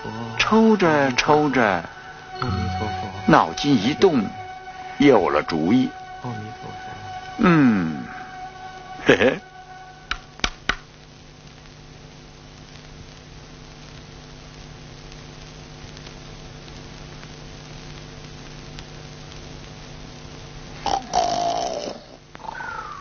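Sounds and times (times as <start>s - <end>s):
soundtrack hum and hiss: 0.0s - 23.0s
pipe knocking on wood: 10.1s - 10.8s.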